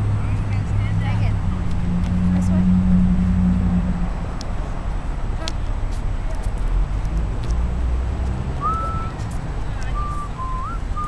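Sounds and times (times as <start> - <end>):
low rumble of street traffic: 0.0 - 11.0
rising whistle: 8.6 - 9.2, 9.9 - 11.0.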